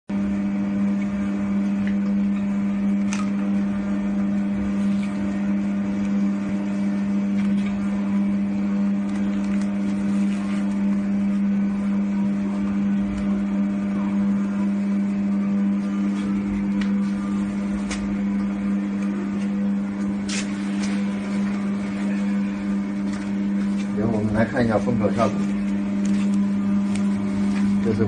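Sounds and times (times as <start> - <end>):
band sealer motor humming: 0.1 - 28.0.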